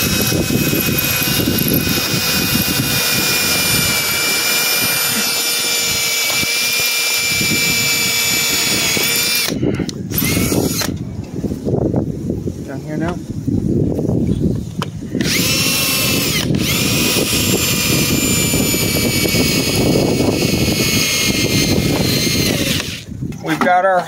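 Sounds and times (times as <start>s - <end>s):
drill boring into brick: 0.0s - 11.0s, 15.2s - 23.1s.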